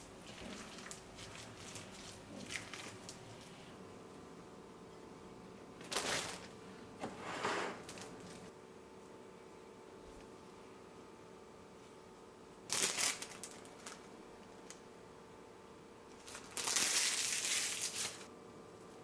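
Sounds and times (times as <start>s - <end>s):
plastic packaging crinkling: 0.2s - 3.6s, 5.8s - 6.5s, 12.7s - 14.8s, 16.1s - 18.3s.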